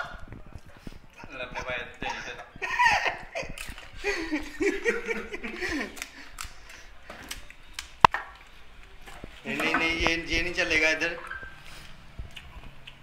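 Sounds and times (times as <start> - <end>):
people laughing and talking: 0.0 - 6.9.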